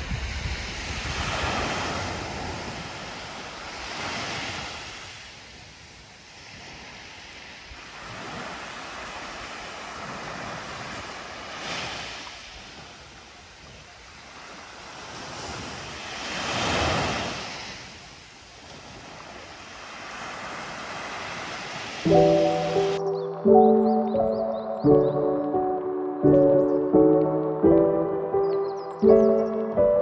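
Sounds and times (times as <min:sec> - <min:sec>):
wind buffeting microphone: 0:00.0 - 0:04.2
sea waves washing onto beach: 0:00.0 - 0:30.0.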